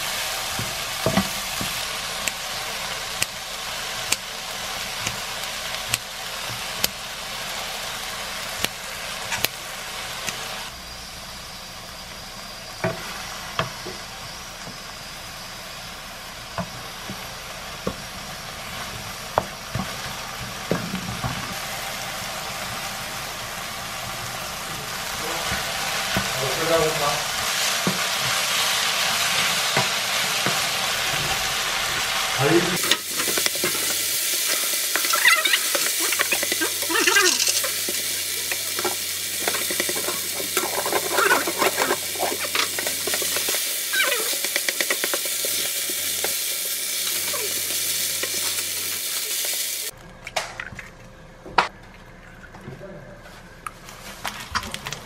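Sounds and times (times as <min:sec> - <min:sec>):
food sizzling in frying pan: 0:00.0 - 0:50.0
wooden spatula scraping pan: 0:32.8 - 0:43.6.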